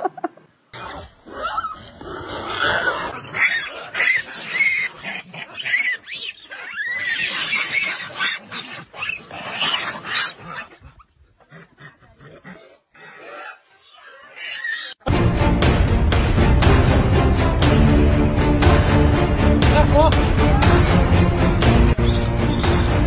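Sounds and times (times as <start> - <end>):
macaques squealing: 2.6 - 15.0, 22.0 - 23.0.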